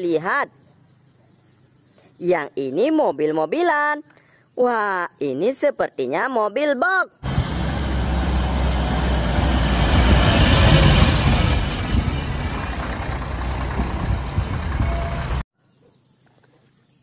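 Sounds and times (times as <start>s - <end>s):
garbage truck driving past: 7.2s - 15.4s.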